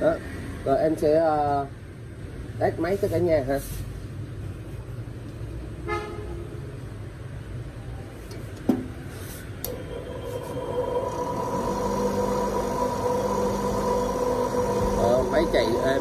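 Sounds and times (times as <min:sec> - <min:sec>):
bench grinder motor hum: 0:09.7 - 0:16.0.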